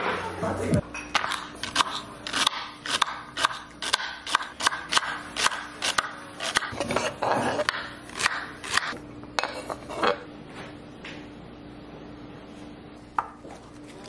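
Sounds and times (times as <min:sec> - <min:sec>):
knife chopping on wooden board: 0:01.2 - 0:08.9
knife scraping cutting board: 0:05.4 - 0:10.2.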